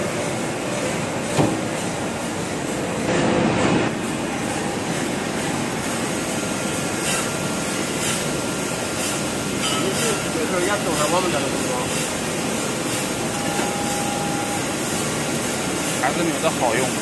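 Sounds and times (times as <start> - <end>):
grinding machine hiss and hum: 0.0 - 17.0
guard doors shutting with a knock: 1.3 - 1.7.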